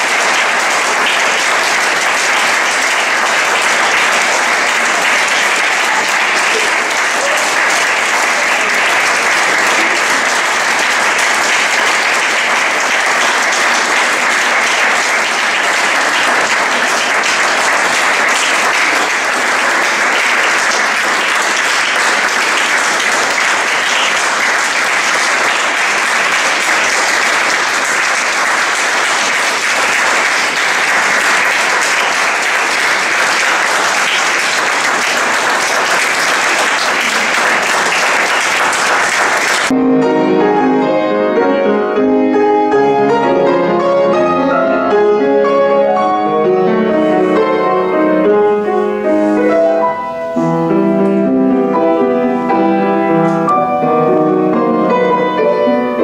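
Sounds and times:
audience applauding: 0.0 - 39.8.

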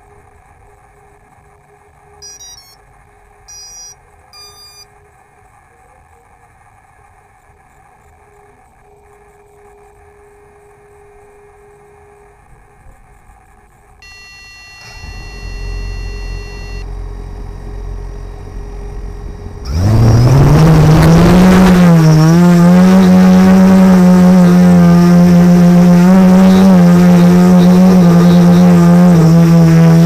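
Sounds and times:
drone motors whining and humming: 2.0 - 4.8, 8.4 - 30.0
long electronic beep: 2.2 - 2.8, 3.5 - 4.9, 14.0 - 22.4.

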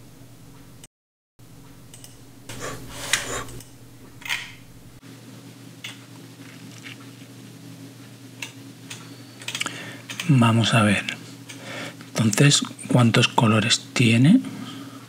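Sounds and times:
low steady hum: 0.0 - 0.8, 1.4 - 15.0.

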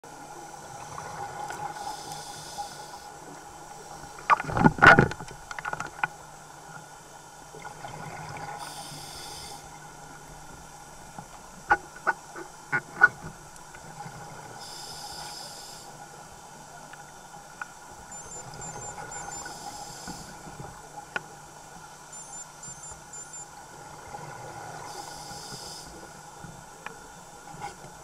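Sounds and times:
scuba regulator breathing: 1.7 - 3.2, 8.6 - 9.8, 14.6 - 16.0, 18.3 - 20.6, 24.8 - 26.2.

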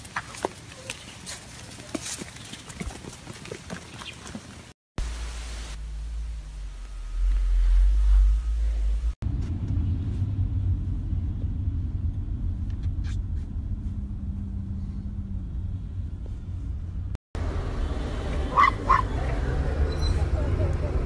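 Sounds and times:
car road rumble: 5.0 - 21.0
small dog barking: 18.5 - 19.2.

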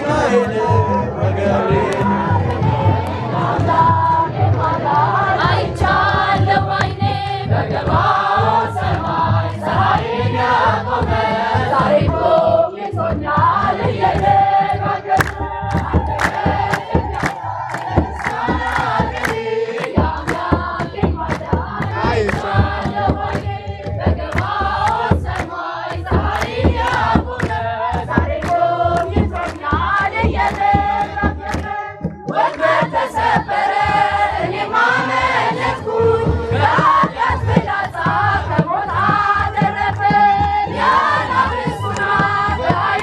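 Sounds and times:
crowd singing a hymn: 0.0 - 43.0
drum beating: 0.0 - 43.0
hand clapping: 14.0 - 23.5, 24.2 - 33.1, 38.9 - 43.0.

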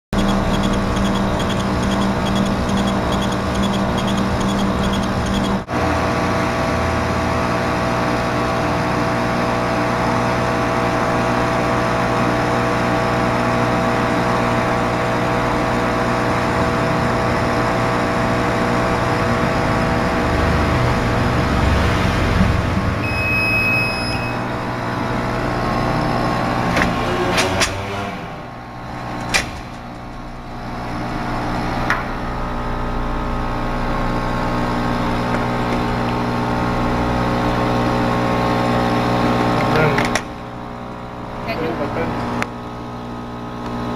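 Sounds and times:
sharp clicks: 0.2 - 5.6
laser cutter humming: 0.2 - 5.7
single beep: 23.0 - 24.5.

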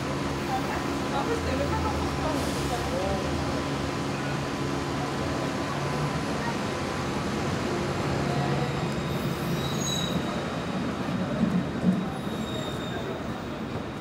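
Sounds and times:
wheel squeal on rails: 9.0 - 10.4, 11.9 - 13.6.

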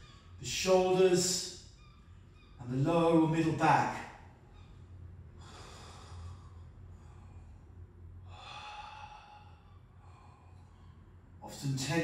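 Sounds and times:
man breathing deeply: 5.2 - 11.4.

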